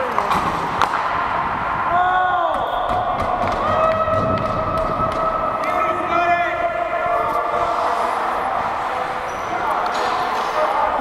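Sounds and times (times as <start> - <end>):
skates scraping on ice: 6.8 - 11.0.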